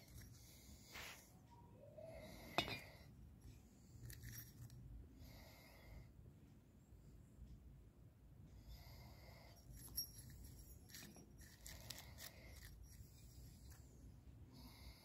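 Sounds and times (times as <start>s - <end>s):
light metal scraping: 2.4s - 3.1s, 9.6s - 14.1s.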